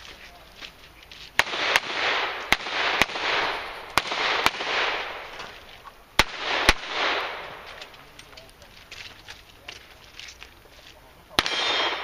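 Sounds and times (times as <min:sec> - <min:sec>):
handgun shots with echo: 0:11.4 - 0:12.0.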